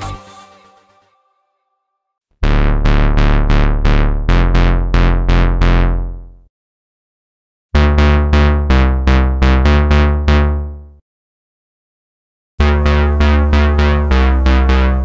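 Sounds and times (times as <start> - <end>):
synthesizer bass notes: 2.4 - 6.5, 7.8 - 11.0, 12.6 - 15.0.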